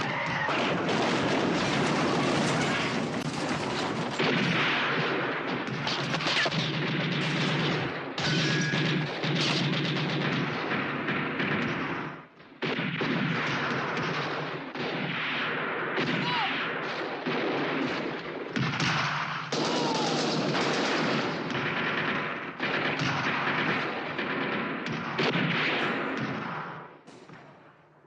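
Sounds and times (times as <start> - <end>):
machine guns and rifles firing: 0.0 - 28.0.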